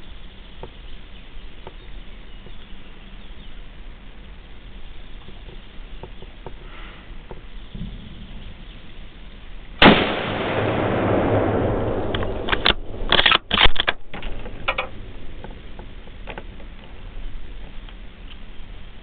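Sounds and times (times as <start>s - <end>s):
rifle shot: 9.8s - 14.9s.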